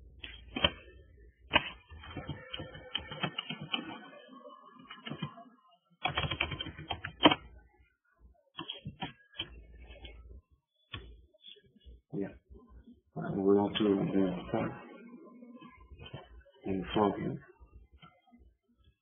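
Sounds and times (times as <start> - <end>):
typing on computer keyboard: 1.5 - 4.0, 4.9 - 5.4, 6.0 - 7.4, 8.6 - 10.2.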